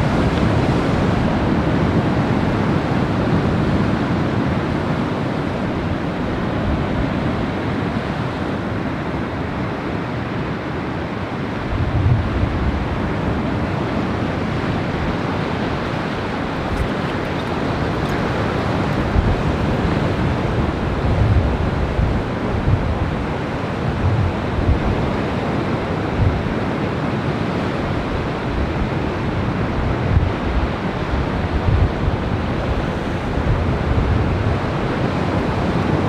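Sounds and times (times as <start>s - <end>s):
wind buffeting microphone: 11.4s - 36.0s
surf washing onto rocky shore: 14.9s - 21.1s.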